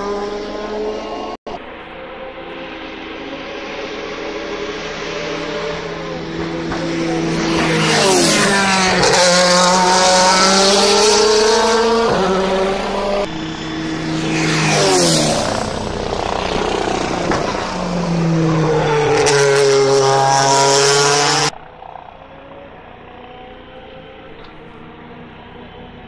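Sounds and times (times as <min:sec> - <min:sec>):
race car engines passing: 0:00.0 - 0:26.0.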